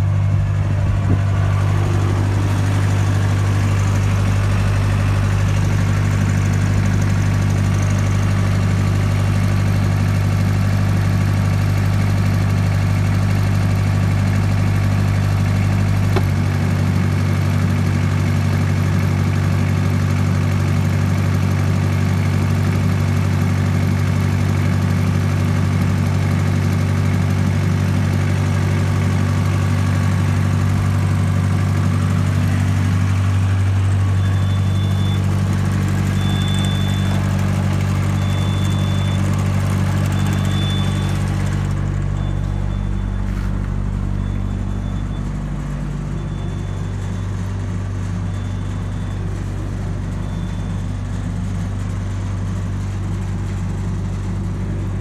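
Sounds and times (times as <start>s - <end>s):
short high beeps: 34.2s - 35.3s, 36.2s - 37.3s, 38.1s - 39.3s, 40.0s - 41.3s.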